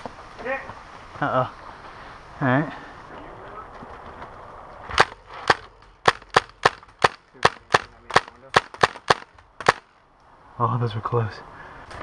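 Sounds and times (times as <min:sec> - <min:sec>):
airsoft gun shots: 0:04.9 - 0:09.9.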